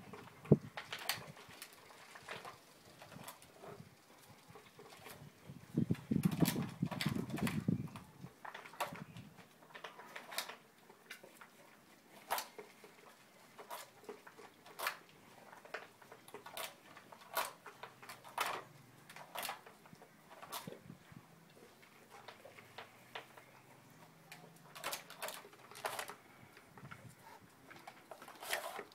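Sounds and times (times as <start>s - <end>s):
plastic puzzle toy clicking: 15.6s - 20.8s, 24.3s - 26.2s.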